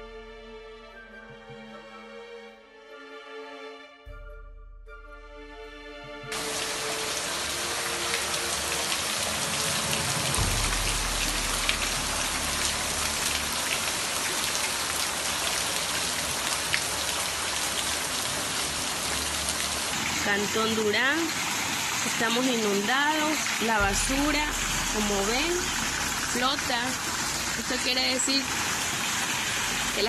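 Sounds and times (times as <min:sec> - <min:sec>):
rain falling on streets: 0:06.3 - 0:30.0.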